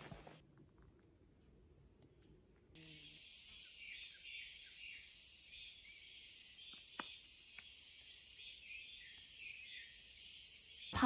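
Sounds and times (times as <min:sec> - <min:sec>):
insects chirring: 0:02.8 - 0:11.0.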